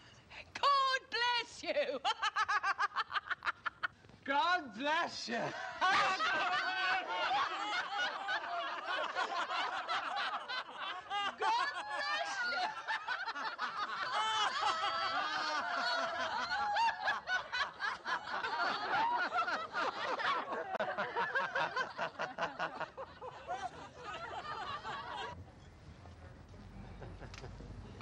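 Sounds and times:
crowd laughing loudly: 2.0 - 4.0, 5.4 - 25.4.

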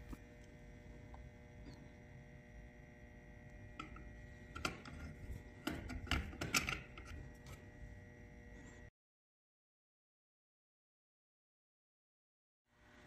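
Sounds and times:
faint steady hum: 0.0 - 8.9, 12.7 - 13.0
clicks and scrapes of handling wires: 3.8 - 7.7.

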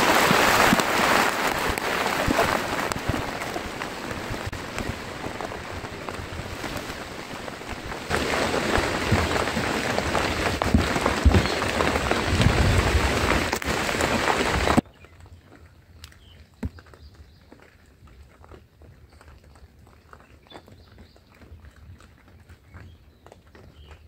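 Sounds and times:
heavy rain falling: 0.0 - 14.8.

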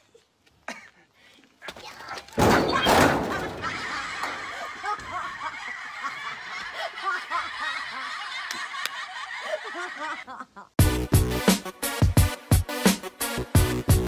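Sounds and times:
people laughing: 2.9 - 10.8
upbeat electronic music: 10.8 - 14.0.

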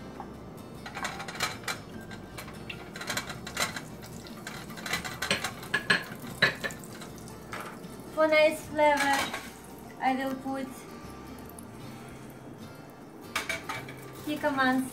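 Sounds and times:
utensil scraping a frying pan: 0.8 - 7.9
butter sizzling: 1.8 - 14.9.

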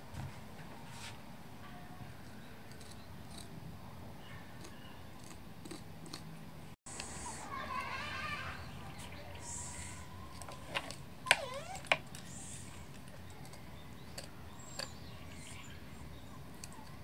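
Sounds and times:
swooping squeak: 11.2 - 11.9.

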